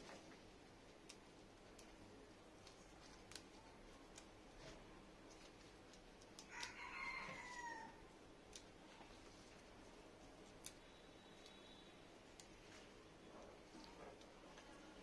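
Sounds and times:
faint rooster crowing: 0:06.4 - 0:08.1.

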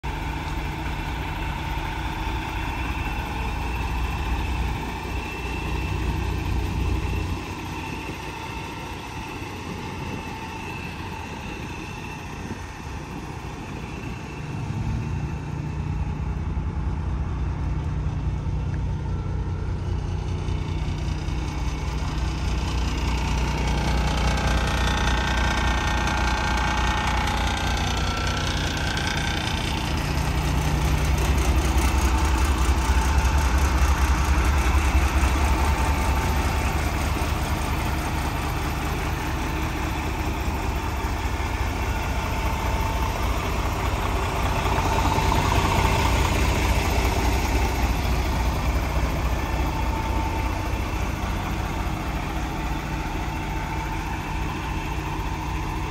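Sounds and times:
diesel truck engine idling: 0:00.0 - 0:55.9.

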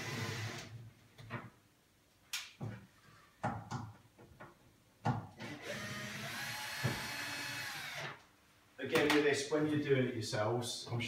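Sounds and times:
electric screwdriver running: 0:05.6 - 0:08.1.

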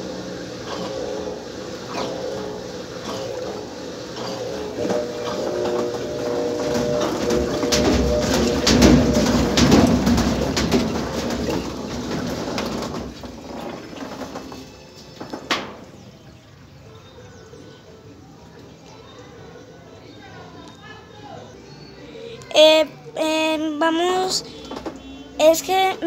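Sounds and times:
steady wavering tones: 0:00.0 - 0:12.3
washing machine knocking and banging: 0:00.0 - 0:16.1, 0:24.6 - 0:25.8
washing machine rumbling: 0:00.0 - 0:16.8, 0:22.5 - 0:26.0.

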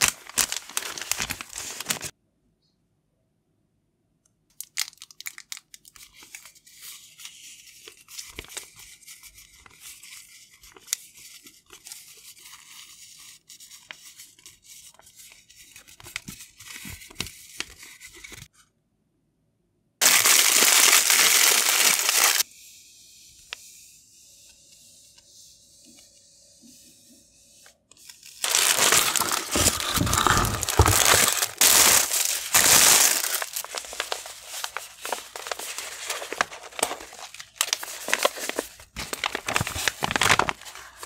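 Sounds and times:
plastic tape crinkling: 0:00.0 - 0:02.1, 0:20.0 - 0:22.4, 0:28.0 - 0:41.0
tape tearing off roll: 0:28.4 - 0:36.9.

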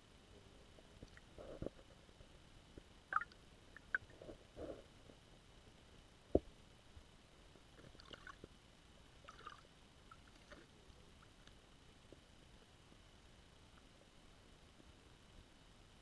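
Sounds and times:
low hiss: 0:00.0 - 0:16.0
faint clicks and ticks: 0:00.4 - 0:15.5.

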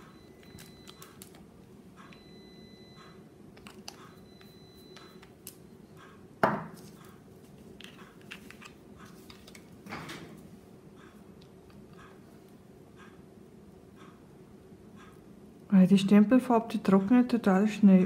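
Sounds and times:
tools tapping on table: 0:06.4 - 0:06.8.

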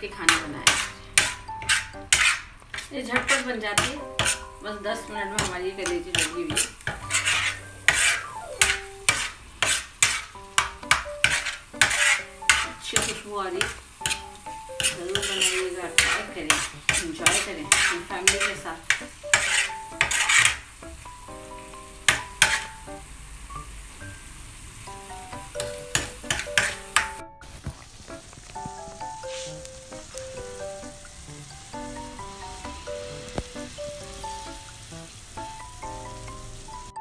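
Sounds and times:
food sizzling: 0:00.0 - 0:37.0
metal spatula scraping griddle: 0:00.1 - 0:04.6, 0:05.3 - 0:20.8, 0:22.0 - 0:22.8, 0:25.6 - 0:27.2.

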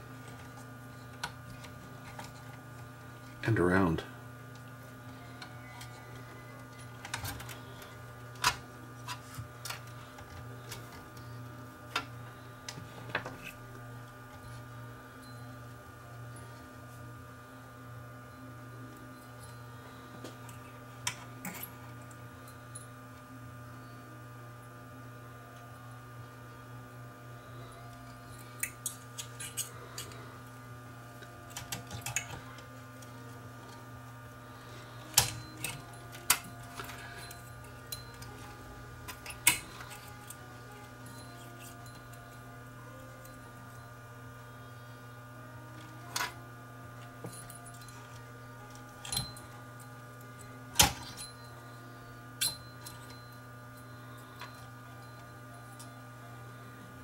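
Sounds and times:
electrical hum: 0:00.0 - 0:57.0
small clicks and rattles of parts: 0:00.2 - 0:03.4, 0:05.4 - 0:11.3, 0:31.2 - 0:33.8.

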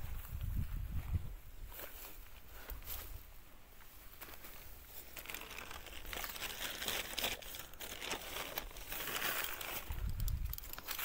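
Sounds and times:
plastic bags rustling: 0:04.1 - 0:11.0.

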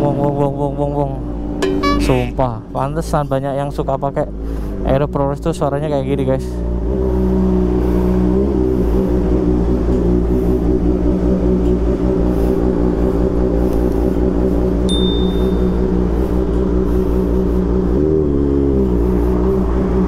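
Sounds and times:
motorcycle engine idling: 0:12.0 - 0:17.8.

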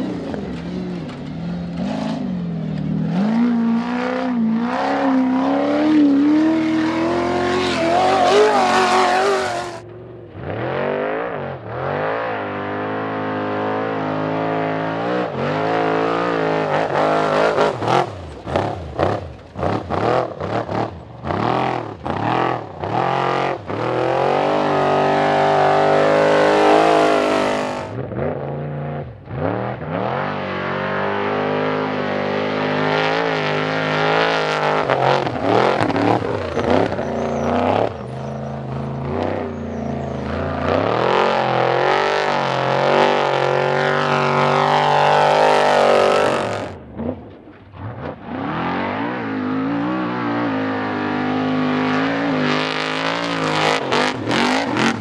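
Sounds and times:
racing trucks revving: 0:00.0 - 0:55.0.

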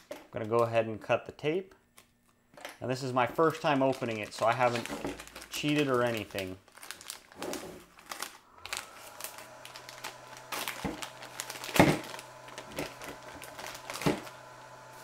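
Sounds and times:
plastic bag crinkling: 0:03.4 - 0:15.0.

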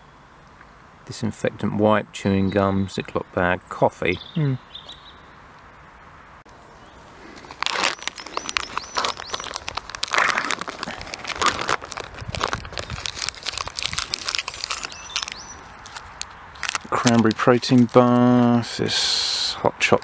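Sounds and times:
plastic pouch crinkling: 0:07.2 - 0:18.6.

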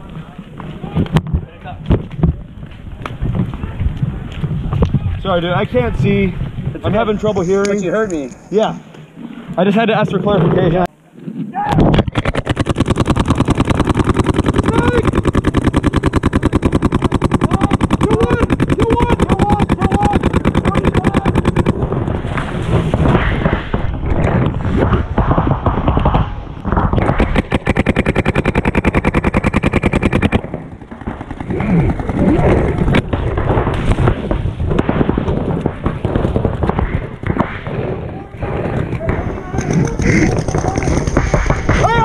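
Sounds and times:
paintball markers firing: 0:12.0 - 0:37.8, 0:38.6 - 0:42.0.

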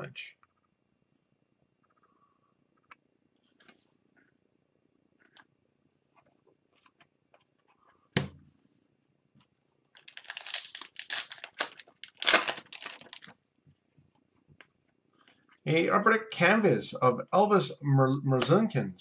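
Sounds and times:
foil wrapper tearing and crinkling: 0:10.0 - 0:13.4.

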